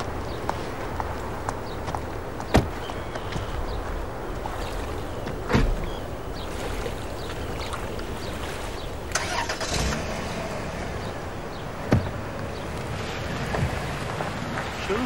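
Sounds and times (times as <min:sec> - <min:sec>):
steady low rumble: 0:00.0 - 0:15.0
car door thudding shut: 0:05.5 - 0:05.9
car engine starting: 0:09.1 - 0:12.6.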